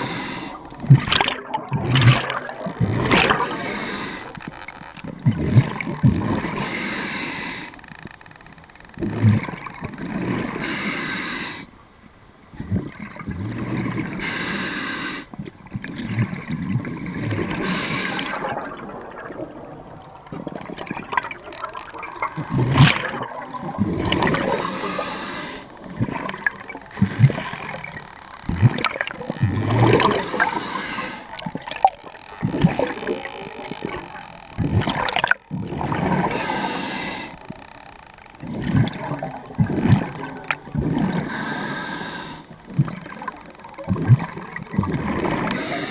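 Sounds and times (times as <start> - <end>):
regulator inhale hiss: 0.0 - 0.7, 3.3 - 4.4, 6.6 - 7.8, 10.6 - 11.8, 14.2 - 15.3, 17.6 - 18.5, 24.4 - 25.8, 30.2 - 31.3, 36.3 - 37.5, 41.2 - 42.6, 45.5 - 45.9
exhaled bubbles underwater: 0.0 - 6.8, 9.0 - 10.7, 12.6 - 14.3, 15.3 - 36.7, 38.4 - 45.9.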